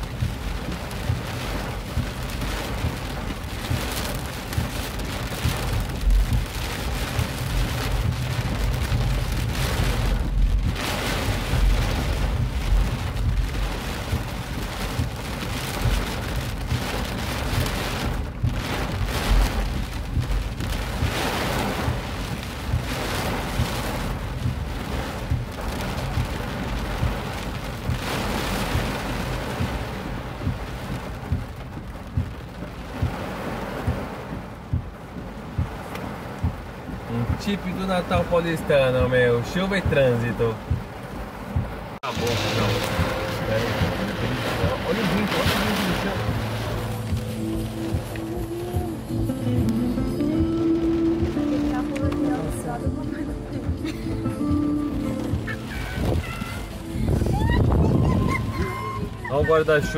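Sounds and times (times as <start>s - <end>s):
heavy rain on car roof: 0.0s - 59.9s.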